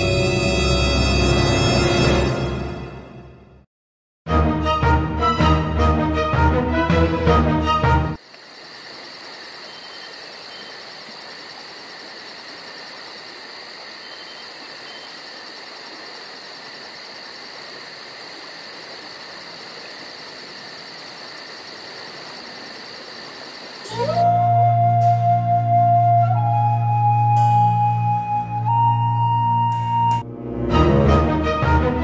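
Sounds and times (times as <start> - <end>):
insects trilling: 8.2 - 24.3.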